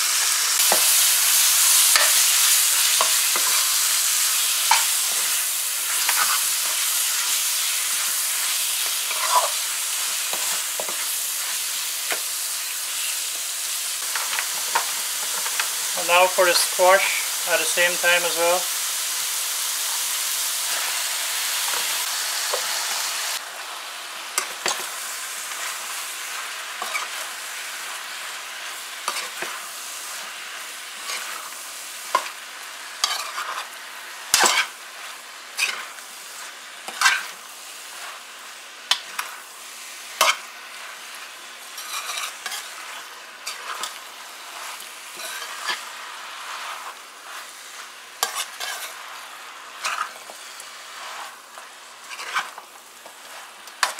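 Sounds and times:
chicken sizzling in pan: 0.0 - 53.9
metal spoon scraping pan: 8.9 - 9.6, 26.8 - 27.2, 33.0 - 33.7, 34.3 - 34.7, 41.8 - 42.8, 45.2 - 45.8, 48.2 - 49.0, 49.8 - 50.3, 52.0 - 52.6.

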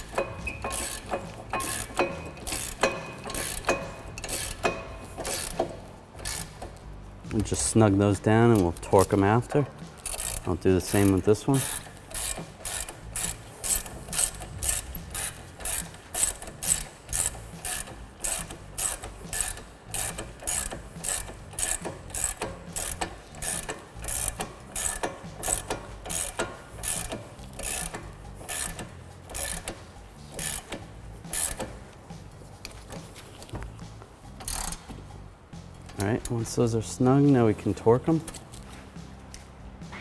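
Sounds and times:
ratchet wrench clicking: 0.0 - 7.6, 8.5 - 31.9, 34.3 - 35.1.

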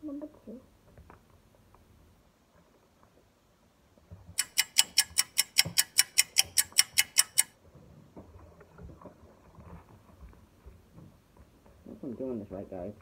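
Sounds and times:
sharp rapid clicks: 4.4 - 7.5.

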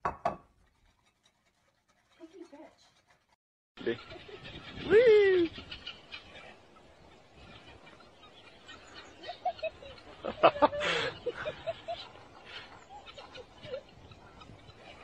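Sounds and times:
small birds chirping: 3.8 - 15.0.

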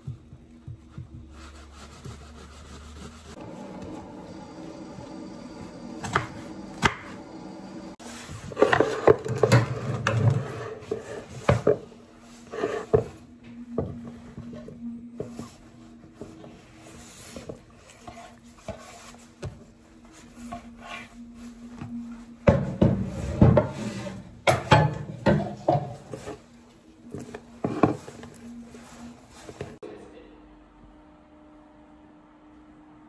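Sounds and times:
low hum: 3.4 - 11.2.

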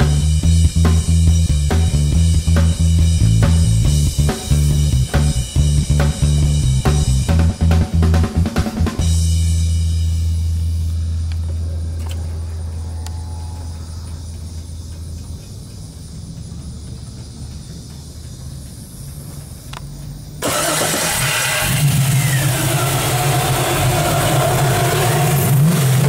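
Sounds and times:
low steady hum: 0.0 - 17.2
car engine starting and running: 0.0 - 26.0.

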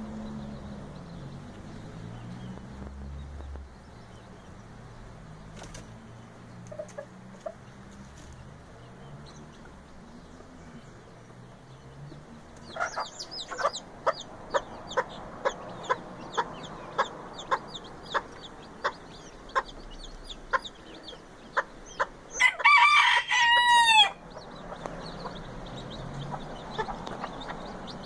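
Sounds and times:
chickens clucking: 6.6 - 8.4, 12.1 - 22.8, 24.3 - 28.0
rooster crowing: 22.4 - 24.2.

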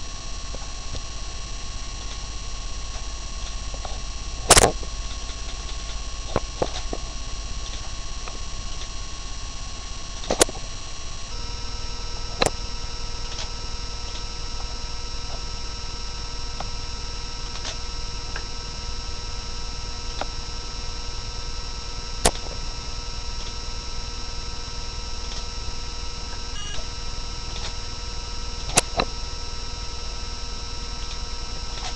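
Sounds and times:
electrical hum and whine: 0.0 - 31.9
sharp clicks: 4.5 - 7.0, 28.6 - 29.1.

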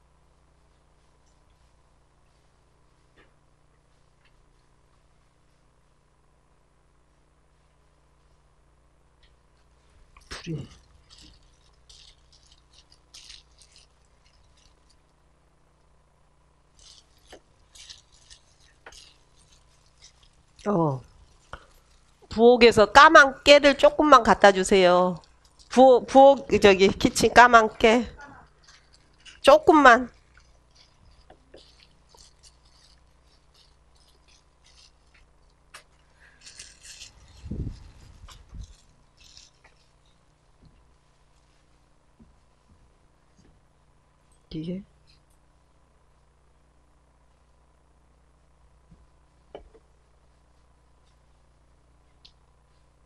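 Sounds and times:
gloved hands rustling plastic: 9.3 - 15.9, 16.6 - 42.6.

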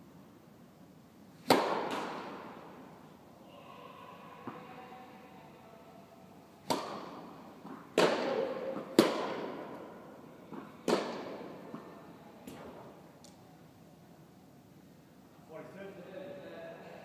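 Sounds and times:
tennis ball bouncing: 1.4 - 2.6, 6.6 - 9.9, 10.5 - 11.9
rackets hitting tennis ball: 1.4 - 3.0, 6.6 - 13.4.

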